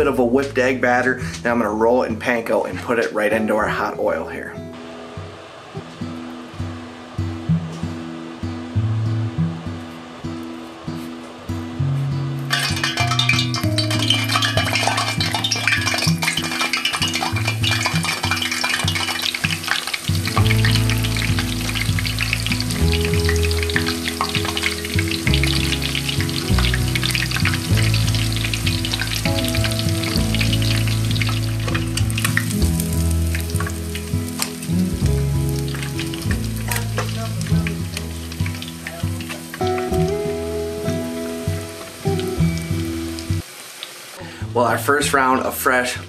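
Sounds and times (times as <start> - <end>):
background music with bass: 0.0 - 2.2, 11.6 - 43.4
fish deep-frying in oil: 12.4 - 44.4
metal tongs in oil: 12.5 - 32.6, 35.6 - 39.8.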